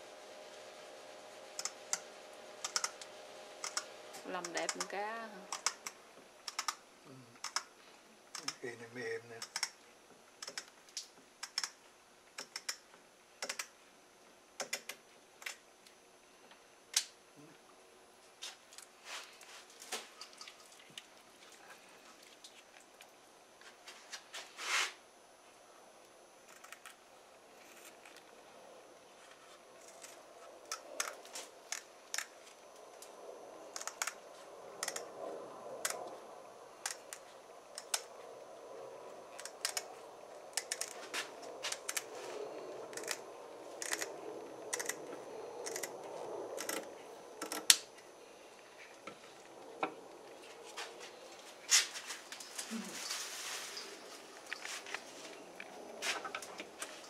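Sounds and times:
faint rustling: 0:50.3 - 0:57.0.

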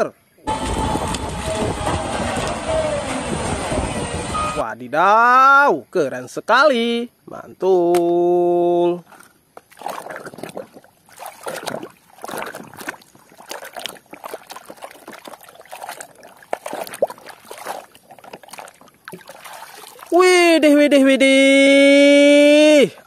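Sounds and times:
water sloshing in a basin: 0:09.0 - 0:20.4.

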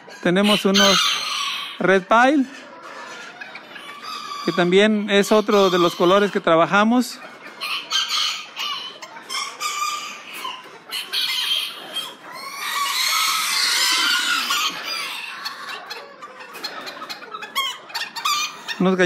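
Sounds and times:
chickens clucking and squawking: 0:00.0 - 0:19.0.

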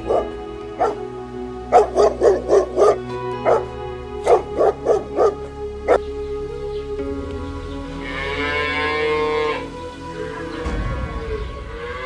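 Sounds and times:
dog barking: 0:00.0 - 0:01.0, 0:01.7 - 0:06.0
background music: 0:00.0 - 0:12.0.

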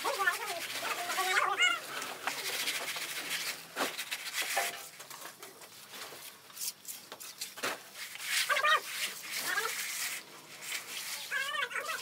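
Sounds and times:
trowel scraping wet concrete: 0:06.6 - 0:12.0.

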